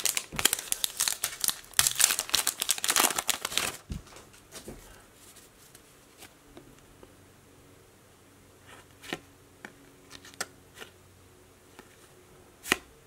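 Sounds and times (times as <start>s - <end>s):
foil wrapper crinkling and tearing: 0.0s - 3.9s.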